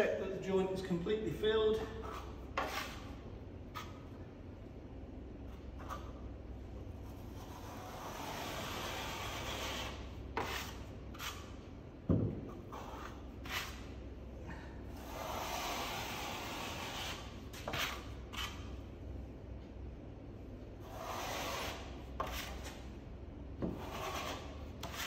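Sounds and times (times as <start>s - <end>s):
trowel scraping wet plaster: 2.0s - 3.1s, 7.1s - 11.6s, 12.6s - 13.9s, 15.0s - 18.7s, 20.8s - 22.8s, 23.6s - 25.0s.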